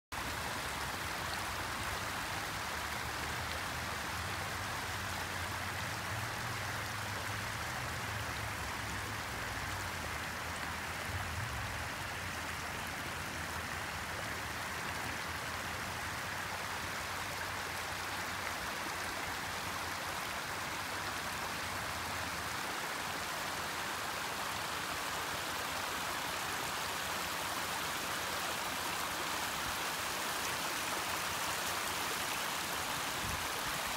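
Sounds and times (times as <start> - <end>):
flowing water rushing: 0.1 - 33.9.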